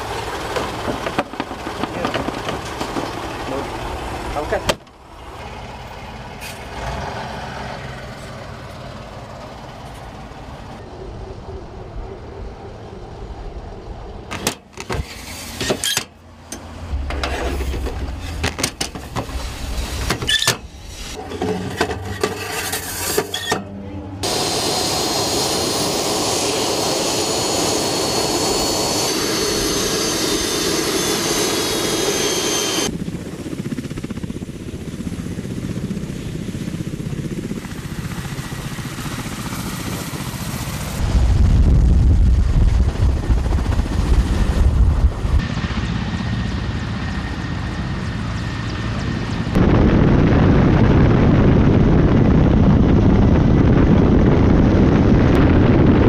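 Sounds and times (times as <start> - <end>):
helicopter engines running: 0.0 - 22.3, 23.2 - 41.1, 41.8 - 56.0
turbine whine with rotor noise: 0.0 - 56.0
knocks and clatter: 0.4 - 3.5, 14.3 - 23.7
low steady rumble: 16.2 - 23.0.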